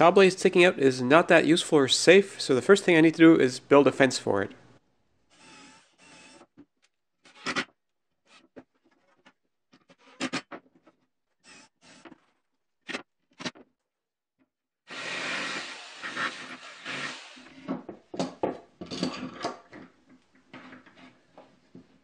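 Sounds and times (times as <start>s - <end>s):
cordless drill boring wood: 5.3s - 6.5s, 11.4s - 12.1s, 14.9s - 17.6s
jigsaw cutting board: 14.9s - 17.8s.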